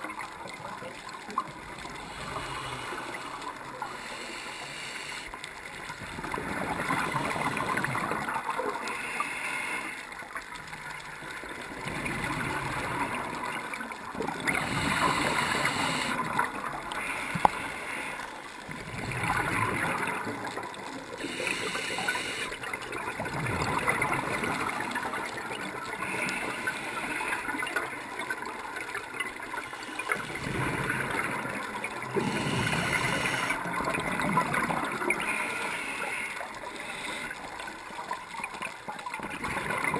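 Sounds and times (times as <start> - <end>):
diver breathing through regulator: 1.9 - 5.4, 8.8 - 10.1, 14.4 - 18.5, 21.2 - 22.7, 25.9 - 27.7, 32.0 - 33.7, 35.0 - 37.7.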